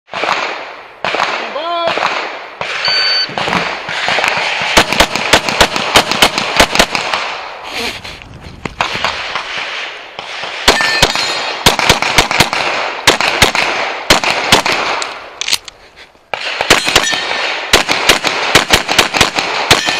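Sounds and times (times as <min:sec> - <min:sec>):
rapid pistol fire: 0:00.1 - 0:07.5, 0:08.8 - 0:15.1, 0:16.3 - 0:19.9
shot timer beep: 0:02.8 - 0:03.3.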